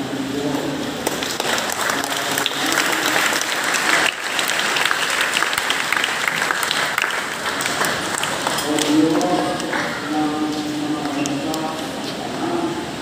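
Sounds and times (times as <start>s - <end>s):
congregation applauding: 0.9s - 10.0s.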